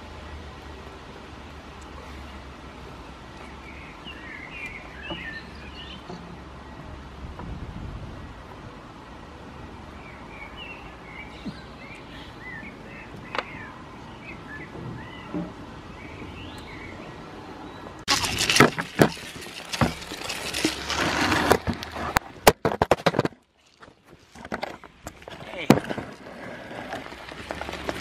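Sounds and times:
small birds chirping: 3.4s - 7.0s, 9.9s - 18.0s
loud rustling and knocks: 18.1s - 26.3s.

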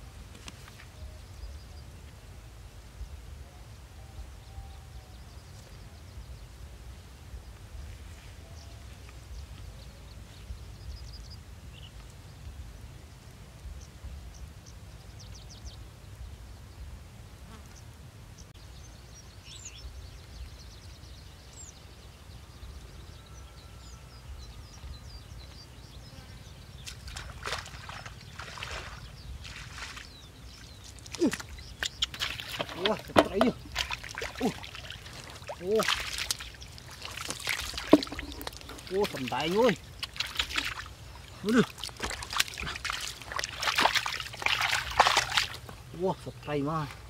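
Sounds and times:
wind rumble on microphone: 0.0s - 46.0s.

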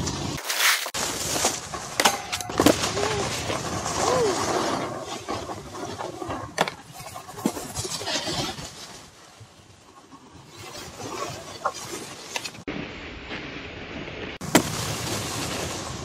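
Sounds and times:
snowboard scraping over snow: 0.0s - 12.7s, 14.4s - 16.0s
snowboard knocks: 14.4s - 15.8s.

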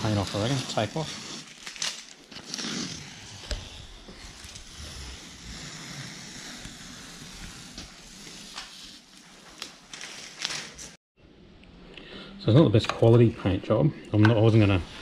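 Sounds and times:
masking tape ripping off: 0.0s - 9.0s.

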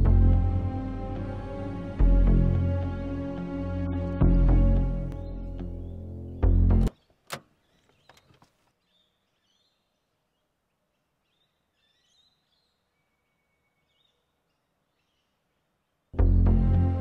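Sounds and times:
soft bird chirps: 5.2s - 16.6s
small clicks: 6.8s - 8.7s.

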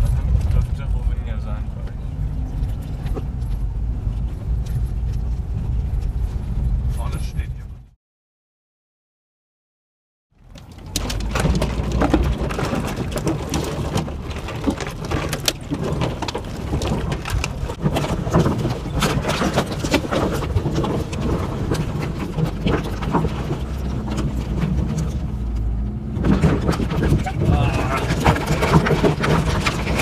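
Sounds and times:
car engine running at low speed: 0.0s - 7.9s
branches scraping and snapping on car: 10.4s - 30.0s.

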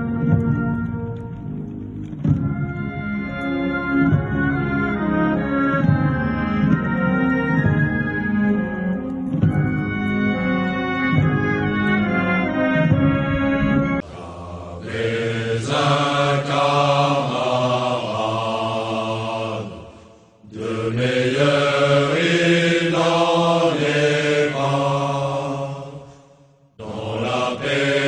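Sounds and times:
low voices chanting: 14.0s - 28.0s.

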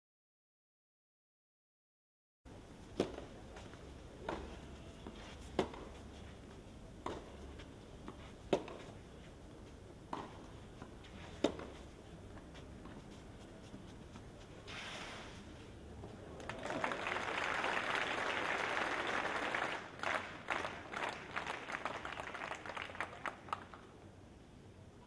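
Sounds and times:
racket hitting tennis ball: 3.0s - 3.3s, 5.5s - 6.0s, 7.0s - 7.3s, 8.1s - 9.0s, 10.1s - 11.9s.

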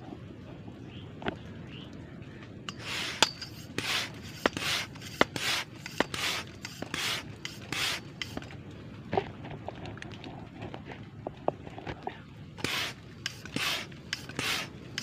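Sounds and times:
hand pump hissing strokes: 2.7s - 8.5s, 12.6s - 15.0s
pump clicking: 2.7s - 8.5s, 12.6s - 15.0s.

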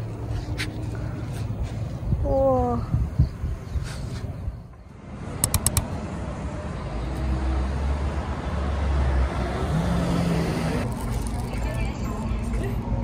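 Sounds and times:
street traffic: 0.0s - 13.0s
sharp clicks: 5.4s - 6.0s.

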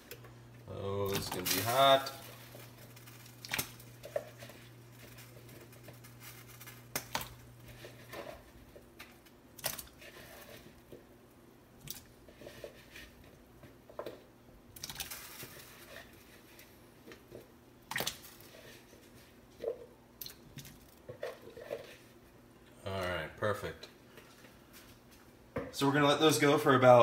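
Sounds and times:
electric stove element humming: 0.0s - 17.9s
pot of water boiling: 0.0s - 22.6s.

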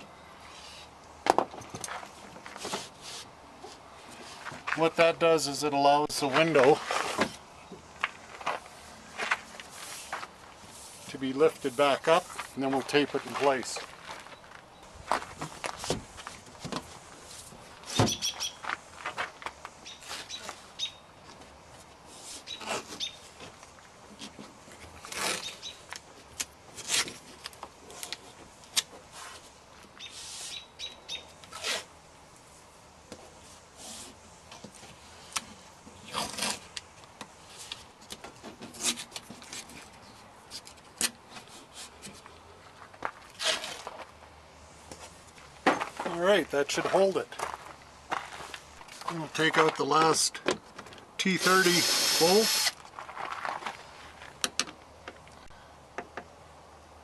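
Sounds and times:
masking tape ripping: 51.4s - 52.8s.

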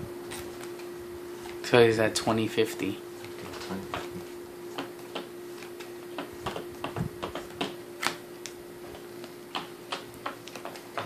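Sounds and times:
faint steady hum: 0.0s - 11.0s
cards clicking and tapping: 4.7s - 11.0s.

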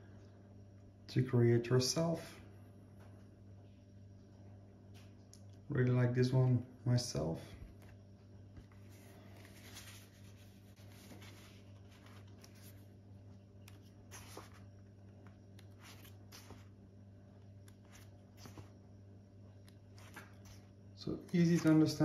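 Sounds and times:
paper leaflet crinkling: 8.6s - 13.0s, 13.6s - 16.8s, 17.7s - 18.8s, 19.7s - 20.8s.

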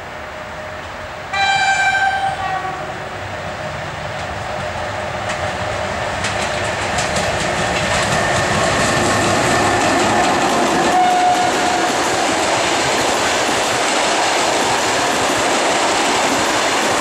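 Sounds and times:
passenger train running noise: 0.0s - 17.0s
locomotive horn blast: 1.3s - 3.0s, 10.8s - 12.0s
wheels clicking over rail joints: 4.1s - 17.0s.

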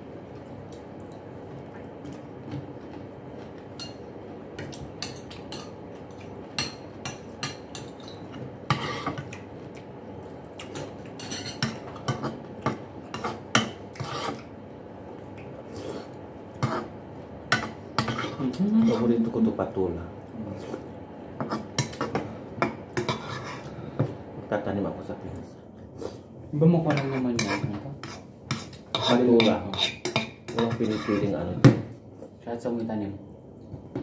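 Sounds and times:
metal spoon scraping soup bowl: 14.0s - 14.4s, 23.0s - 23.7s, 26.9s - 31.3s.

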